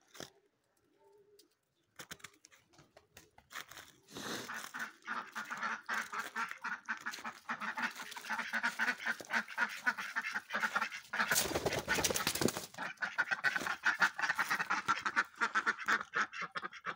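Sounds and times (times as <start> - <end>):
ducks quacking: 4.3 - 16.9.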